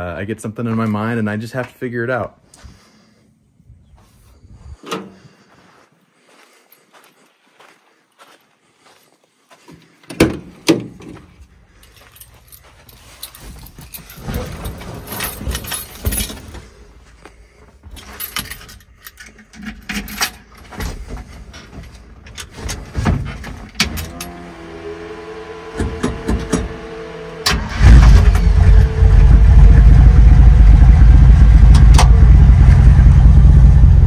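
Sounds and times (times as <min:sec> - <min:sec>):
rustling in the cab: 0:09.7 - 0:24.5
keys jangling: 0:11.8 - 0:16.7, 0:17.9 - 0:20.6
car door clunking: 0:25.7 - 0:27.6.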